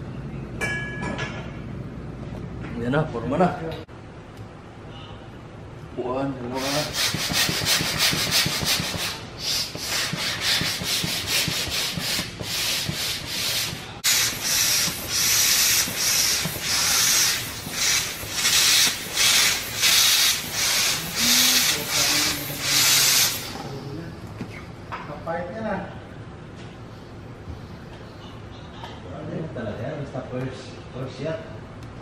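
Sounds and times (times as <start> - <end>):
manual air pump hissing: 6.5 - 23.9.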